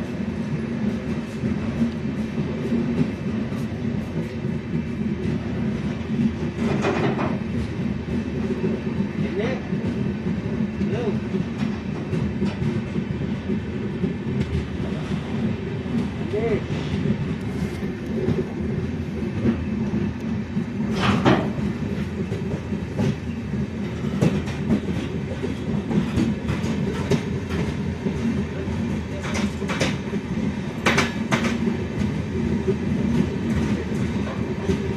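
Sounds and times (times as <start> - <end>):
train coach rumble: 0.0 - 34.9
train wheels clacking on track: 0.0 - 34.9.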